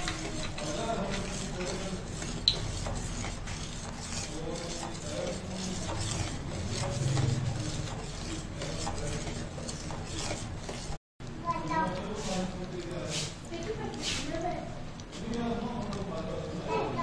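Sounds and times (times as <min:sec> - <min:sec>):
spoon scraping steel saucepan: 0:00.0 - 0:11.0.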